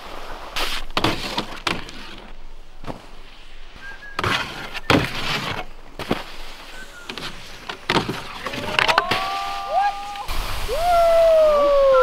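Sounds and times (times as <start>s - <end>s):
skis scraping on box: 0.0s - 9.5s
skis hitting snow: 0.0s - 11.0s.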